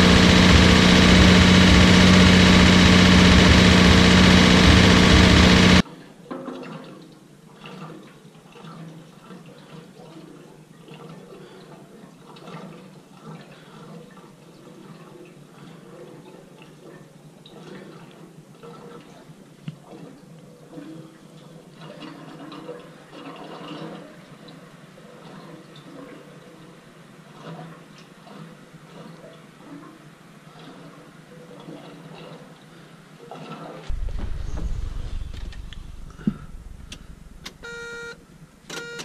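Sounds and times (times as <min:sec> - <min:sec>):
car engine running: 0:00.0 - 0:05.8, 0:33.9 - 0:39.0
liquid pouring and sloshing: 0:06.4 - 0:29.9.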